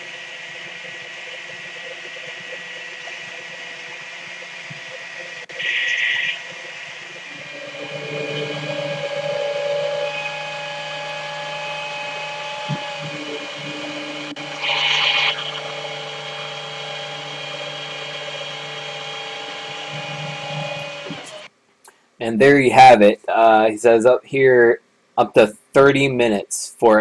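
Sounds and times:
hydraulic winch whine: 0:00.0 - 0:21.5.

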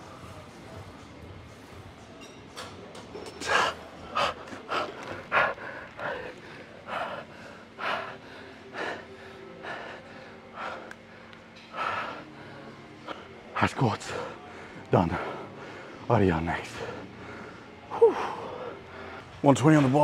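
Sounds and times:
man breathing hard: 0:03.5 - 0:13.2.

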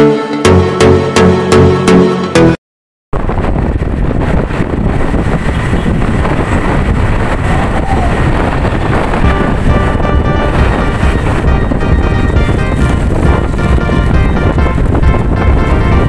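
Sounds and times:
wind rushing over microphone: 0:03.1 - 0:16.0
motorbike road noise: 0:03.2 - 0:16.0.

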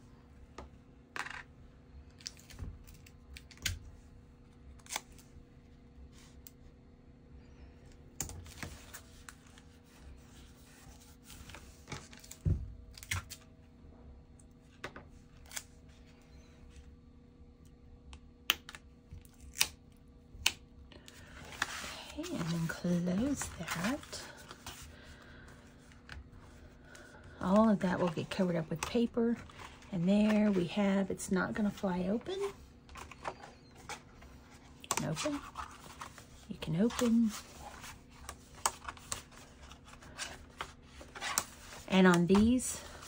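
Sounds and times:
faint steady hum: 0:00.0 - 0:43.0.

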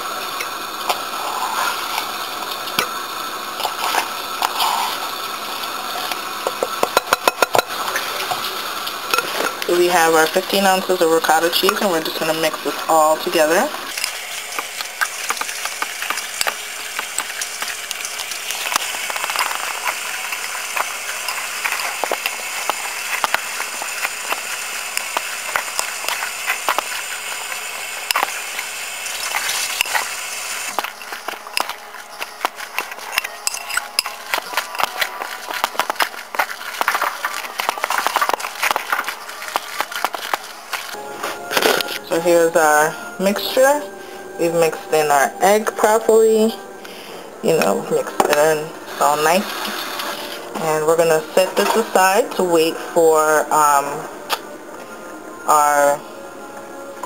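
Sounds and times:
steady hiss: 0:13.8 - 0:32.1
spoon stirring in glass bowl: 0:14.0 - 0:30.1, 0:30.7 - 0:41.0.

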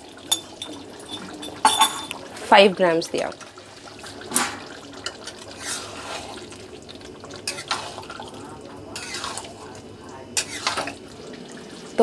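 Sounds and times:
metal spatula scraping a pan: 0:05.1 - 0:06.5, 0:07.4 - 0:08.2, 0:08.9 - 0:09.6, 0:10.4 - 0:11.0.

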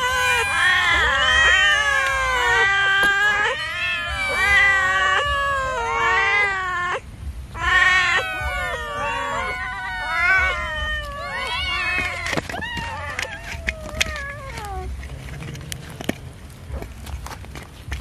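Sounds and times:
cats meowing: 0:00.0 - 0:17.4.

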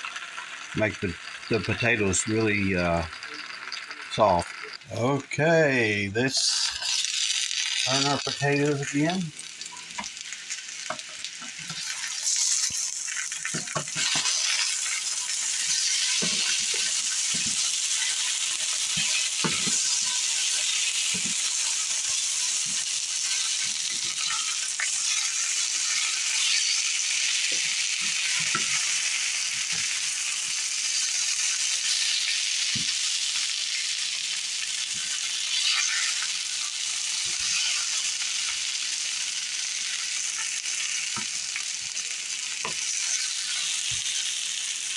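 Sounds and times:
potatoes sizzling in oil: 0:00.0 - 0:44.9
spatula scraping a pan: 0:10.8 - 0:26.8, 0:42.6 - 0:44.2.

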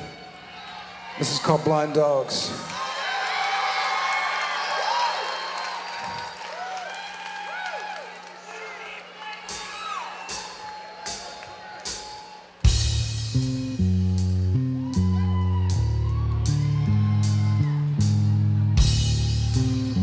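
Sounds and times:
drums and cymbal: 0:09.5 - 0:20.0
guitars playing low riff: 0:12.7 - 0:20.0.

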